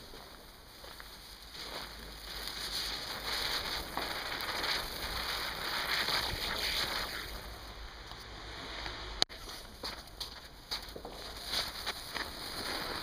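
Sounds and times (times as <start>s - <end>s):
spinning firework hissing: 0.0s - 8.0s, 11.2s - 13.0s.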